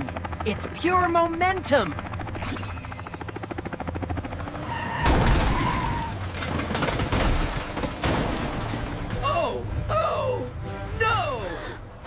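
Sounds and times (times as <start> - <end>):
cartoon helicopter rotor chopping: 0.0 - 6.4.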